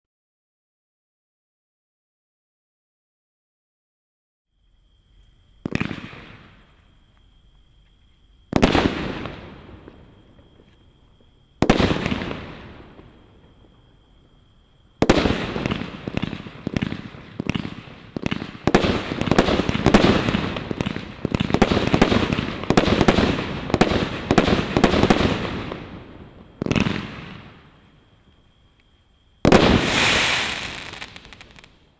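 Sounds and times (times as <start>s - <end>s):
fireworks shots firing: 5.6s - 6.7s, 8.5s - 10.0s, 11.6s - 13.1s, 15.0s - 27.6s, 29.4s - 31.8s.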